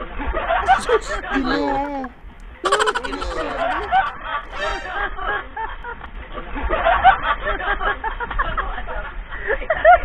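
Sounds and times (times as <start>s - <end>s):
people laughing and chattering: 0.5s - 5.6s.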